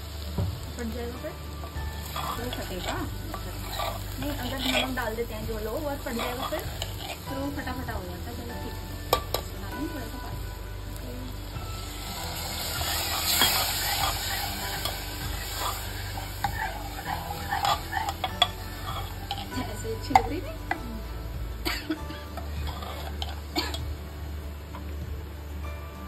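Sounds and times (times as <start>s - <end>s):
water hissing in hot oil: 0.0s - 25.2s.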